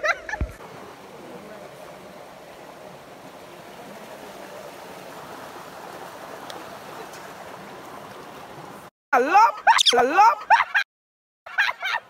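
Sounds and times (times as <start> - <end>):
river water rushing: 0.6 - 8.9.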